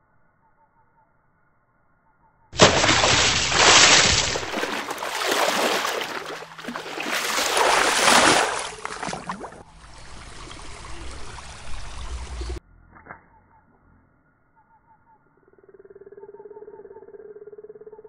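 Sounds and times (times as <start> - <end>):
running water hiss: 2.6 - 12.6
water splashing and trickling: 2.6 - 12.6.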